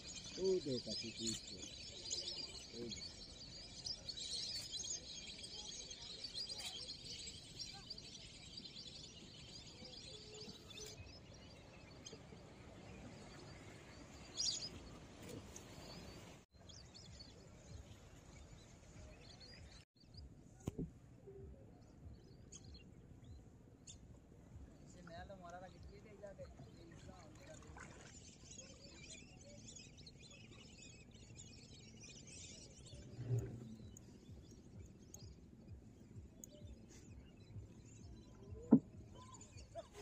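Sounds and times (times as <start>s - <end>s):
birds chirping and calling: 0.0s - 17.2s, 26.4s - 40.0s.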